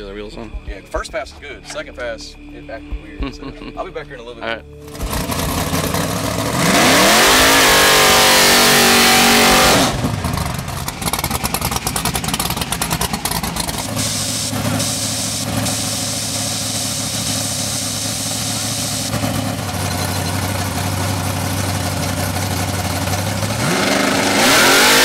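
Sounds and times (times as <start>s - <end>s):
engine rough choppy idle: 4.8s - 6.8s, 9.8s - 24.4s
car engine revving: 4.8s - 25.0s.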